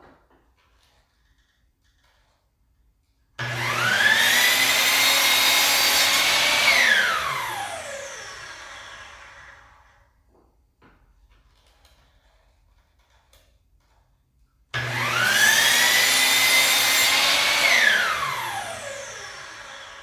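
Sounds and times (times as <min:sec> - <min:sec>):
miter saw whining: 0:03.4 - 0:10.0, 0:14.8 - 0:20.0.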